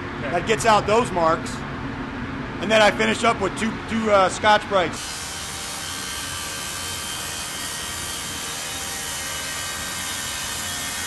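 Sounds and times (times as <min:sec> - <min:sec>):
disc sander on metal: 0:05.0 - 0:11.0.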